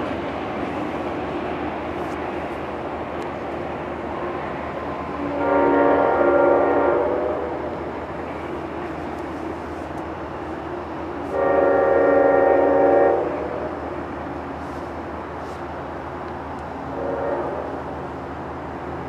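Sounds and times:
train horn blast: 5.2s - 7.7s, 11.2s - 13.8s, 16.9s - 17.8s.

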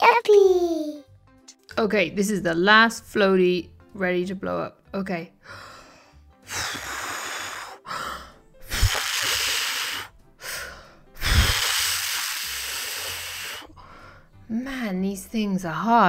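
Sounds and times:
person blowing breathy puffs: 5.5s - 14.2s.

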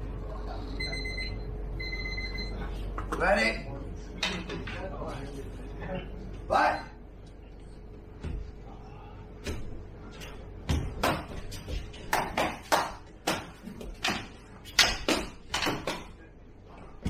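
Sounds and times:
sticks clacking: 13.3s - 16.1s.

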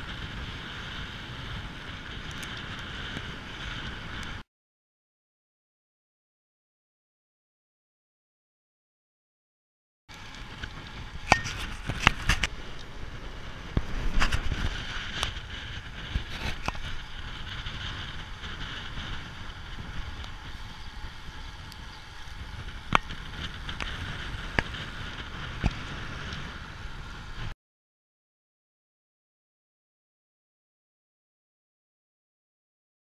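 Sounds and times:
tyre and road noise: 0.0s - 4.4s, 10.1s - 27.5s
wind rushing over microphone: 0.0s - 4.4s, 10.1s - 27.5s
bike clicks and knocks from bumps: 20.1s - 25.0s.

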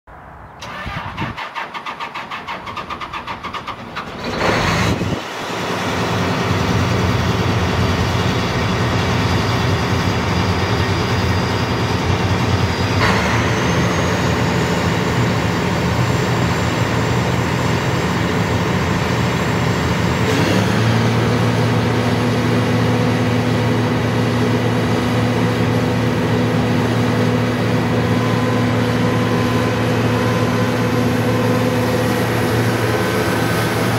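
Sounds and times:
starter motor cranking engine: 0.6s - 5.3s
diesel engine running: 0.6s - 33.9s
high whine: 5.0s - 33.9s.

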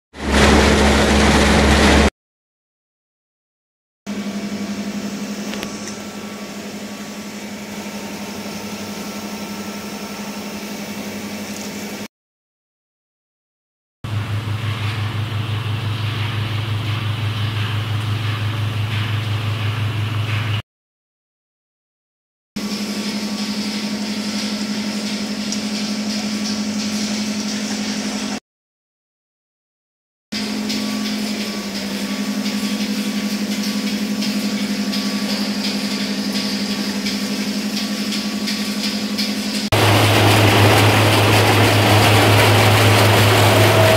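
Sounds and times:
churning water hiss: 4.1s - 12.1s, 14.1s - 20.6s, 22.6s - 28.4s, 30.4s - 43.9s
electric motors humming: 4.2s - 11.8s, 30.7s - 43.9s.

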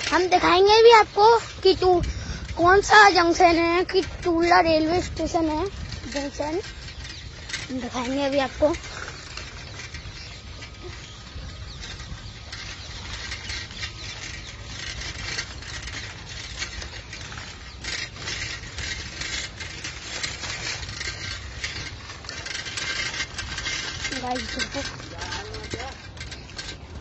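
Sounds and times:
bicycle tyres rattling on bricks: 0.0s - 27.0s
wind rumble on microphone: 0.0s - 27.0s.

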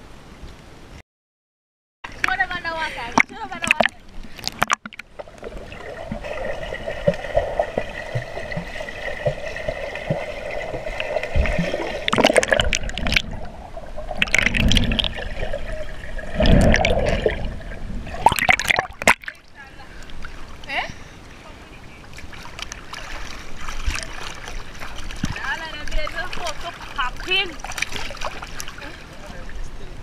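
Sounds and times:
underwater gurgling and bubbling: 3.6s - 19.2s
churning water from kicking: 22.0s - 29.4s.

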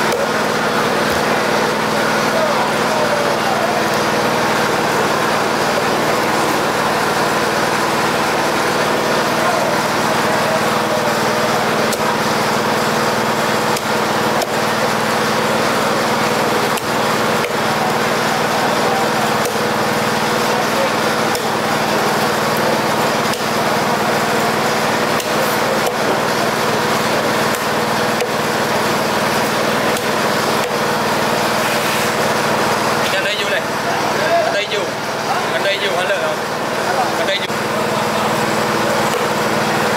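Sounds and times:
small engine running: 0.0s - 39.9s
cleaver striking chopping block: 25.2s - 26.0s.

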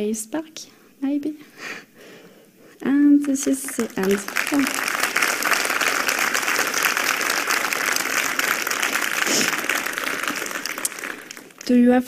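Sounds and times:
audience applauding: 3.2s - 11.8s.

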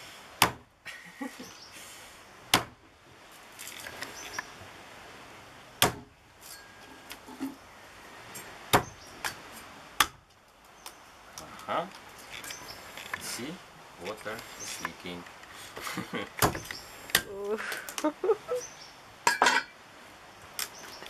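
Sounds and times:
machete chopping coconut husk: 0.4s - 0.7s, 2.5s - 2.8s, 5.8s - 6.1s, 8.7s - 10.2s, 16.4s - 17.4s.

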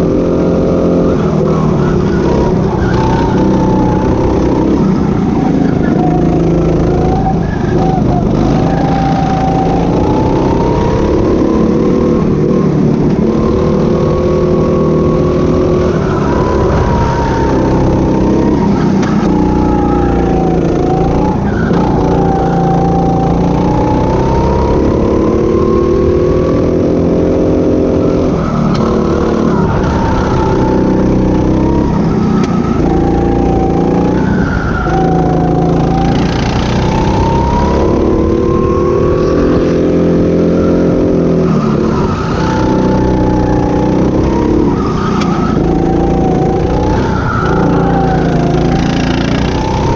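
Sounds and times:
go-kart engine revving: 0.0s - 49.9s.

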